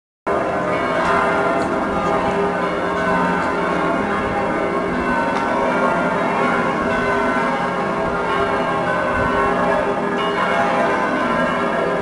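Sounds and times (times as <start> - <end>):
church bells pealing: 0.3 - 12.0.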